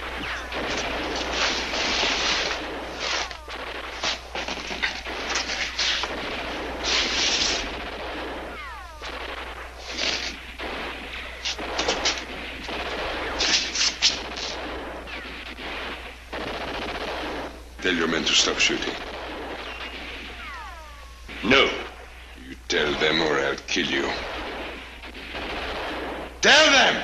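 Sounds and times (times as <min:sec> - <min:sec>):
ricochet whine: 0:00.0 - 0:17.5, 0:19.0 - 0:22.1
rifle and machine-gun shots: 0:00.0 - 0:27.0.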